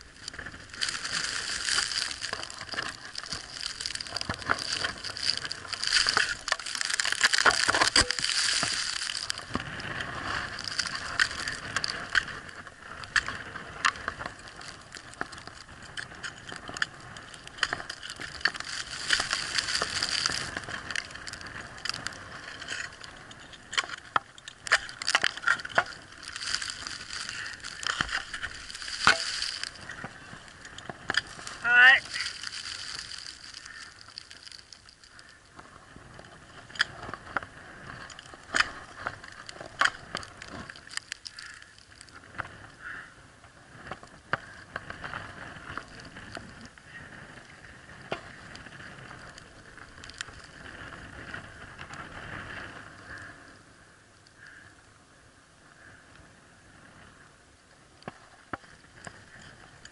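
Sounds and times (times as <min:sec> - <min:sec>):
rustling hiss: 0:00.0 - 0:15.2, 0:24.8 - 0:43.0
ice axe hitting ice: 0:00.8 - 0:09.6, 0:23.7 - 0:30.2.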